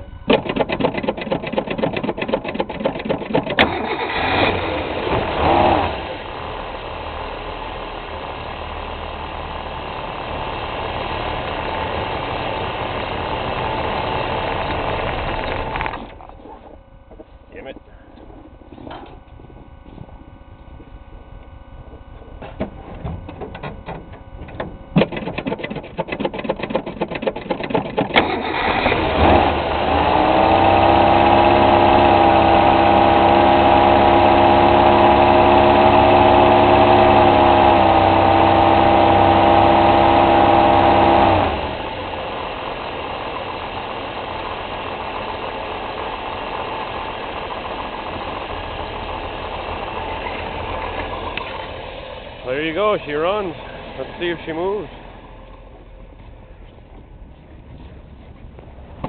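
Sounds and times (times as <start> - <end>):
car engine idling: 0.0 - 59.0
engine starter cranking: 0.2 - 5.3, 22.3 - 29.6.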